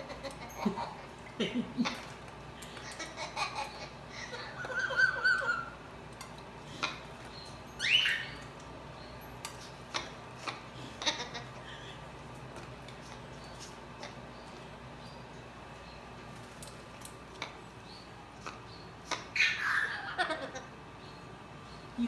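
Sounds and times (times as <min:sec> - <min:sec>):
parrot squawk: 0:04.2 - 0:05.8, 0:07.8 - 0:08.4, 0:19.0 - 0:20.7.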